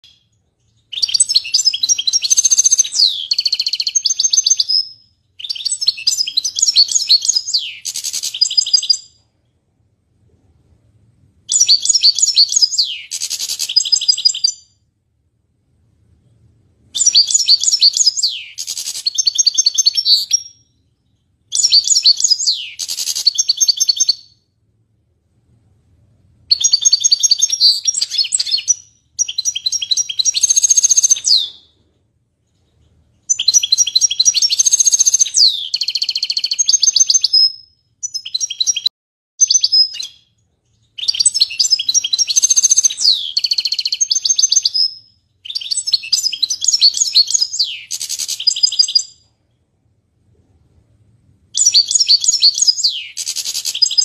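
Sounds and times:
goldfinch twittering and trilling: 0.9s - 4.8s, 41.0s - 49.1s.

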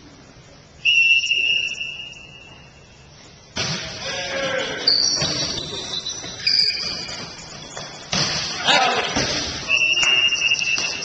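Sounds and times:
whistle blast: 0.8s - 2.8s, 4.9s - 7.2s, 9.6s - 11.0s
short high whistle tones: 0.8s - 3.0s, 4.9s - 7.2s, 9.7s - 11.0s.

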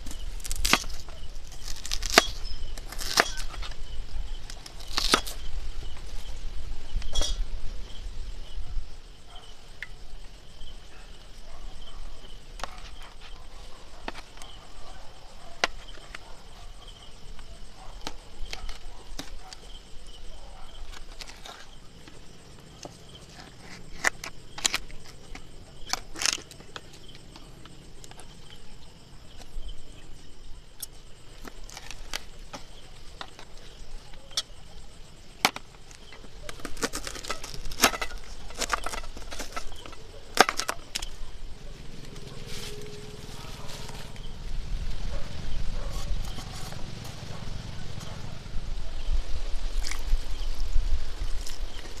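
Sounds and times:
objects clicking and knocking: 35.4s - 41.2s.

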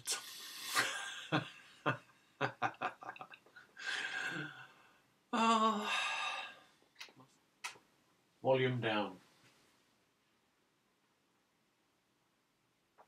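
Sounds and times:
man laughing loudly: 0.8s - 3.4s
man chuckling: 0.8s - 4.6s.

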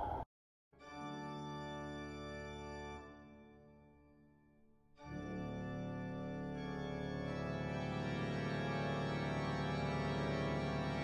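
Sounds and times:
held organ chord: 0.9s - 3.7s, 5.0s - 11.0s.

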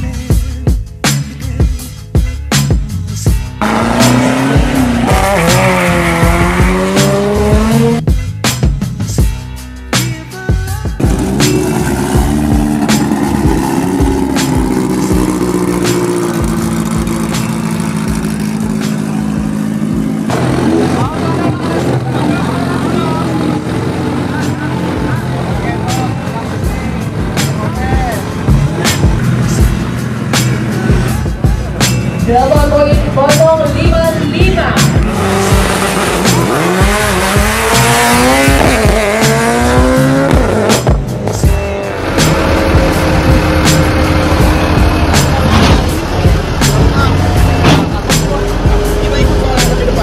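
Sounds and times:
car engine accelerating hard: 3.6s - 8.1s, 11.0s - 31.7s, 34.8s - 50.0s
drag car engine idling: 14.6s - 26.9s.

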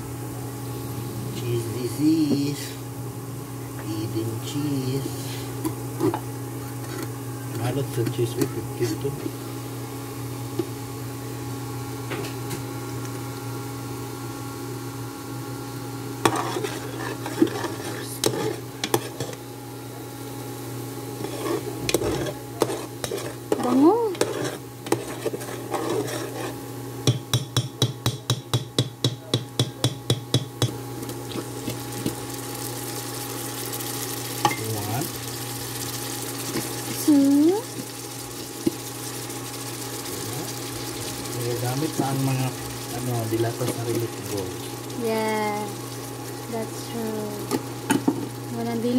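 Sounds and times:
induction cooker hum: 0.0s - 48.9s
spoon stirring and scraping pot: 16.2s - 19.4s, 21.2s - 26.6s.

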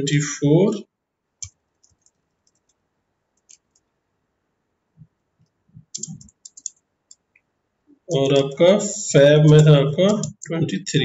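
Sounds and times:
keyboard keystrokes: 5.8s - 7.2s, 9.4s - 10.5s.

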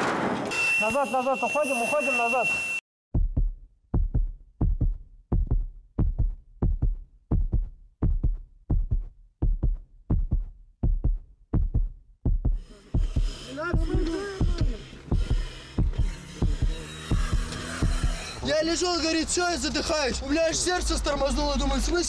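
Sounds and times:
heartbeat double thump: 3.1s - 13.3s, 13.9s - 18.2s.

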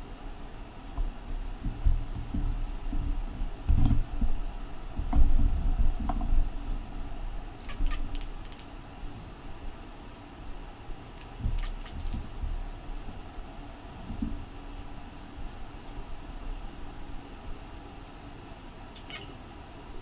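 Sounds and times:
cat chattering: 7.6s - 8.7s, 11.2s - 12.2s, 18.9s - 19.4s.

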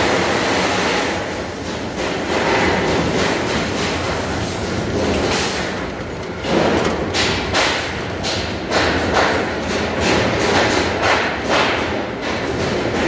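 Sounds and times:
steel-cutting machine running: 0.0s - 10.4s.

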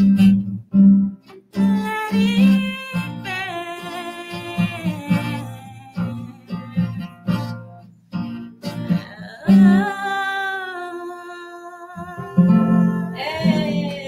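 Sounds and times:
strummed acoustic guitar: 0.0s - 14.0s
woman singing: 1.6s - 7.5s, 8.7s - 14.0s.

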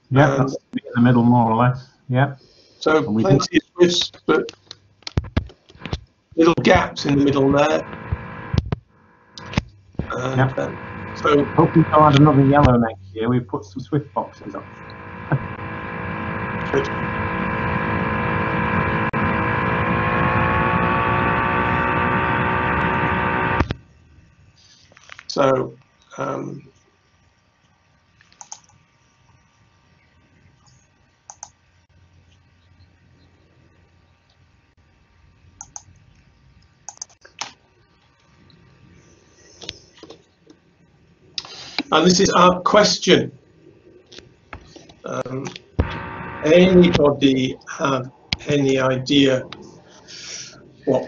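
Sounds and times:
electrical hum with held tones: 0.0s - 51.0s
computer keyboard and mouse clicks: 28.2s - 28.8s, 31.3s - 31.5s, 35.6s - 35.9s, 36.9s - 37.6s.

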